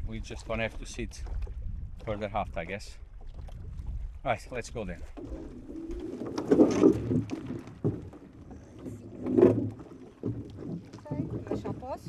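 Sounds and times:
water sloshing and splashing: 0.0s - 12.0s
loud water swishes: 5.2s - 12.0s.

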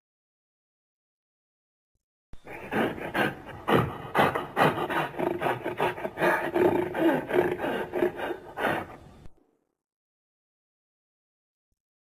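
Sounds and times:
rasping creature growl: 2.4s - 9.0s.

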